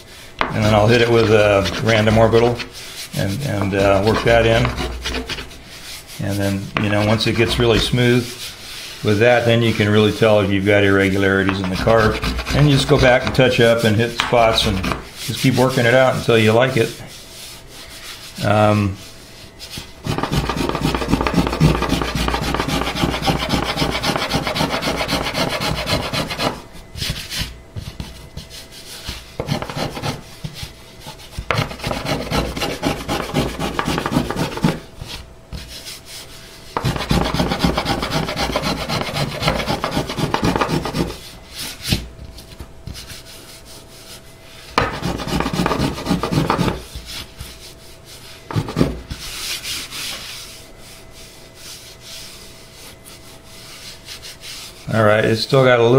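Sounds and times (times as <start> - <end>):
plane shaving wood: 0.6 - 5.6, 11.2 - 13.8, 14.4 - 15.1, 20.0 - 26.6, 29.4 - 30.2, 31.5 - 34.8, 36.8 - 41.2, 44.8 - 46.9.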